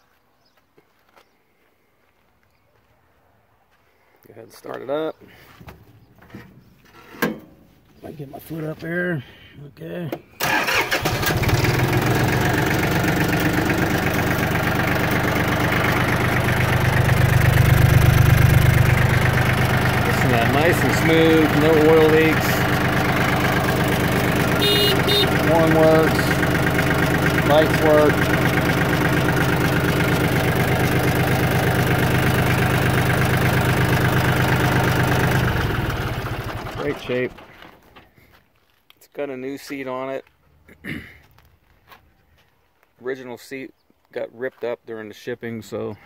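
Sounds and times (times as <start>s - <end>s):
tractor diesel engine idling: 9.9s - 38.4s.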